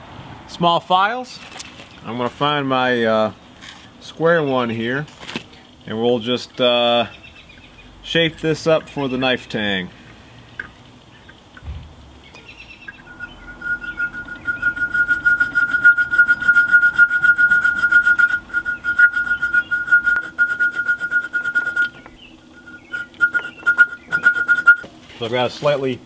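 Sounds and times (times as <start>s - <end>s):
high-pitched squeal: 12.9s - 24.9s.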